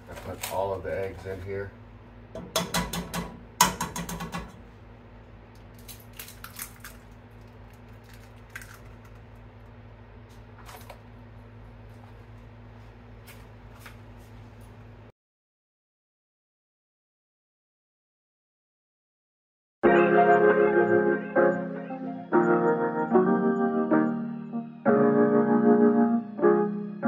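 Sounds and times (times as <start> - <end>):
eggs cracking on a pot rim: 5.7 - 9.5.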